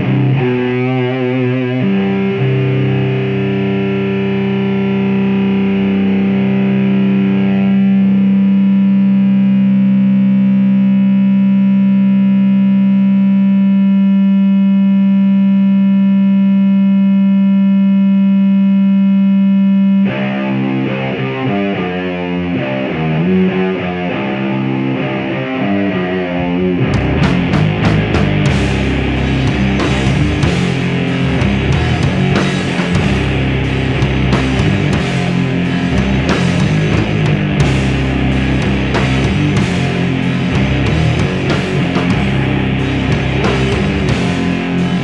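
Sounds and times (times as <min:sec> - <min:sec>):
distorted electric guitar: 0:00.0 - 0:45.0.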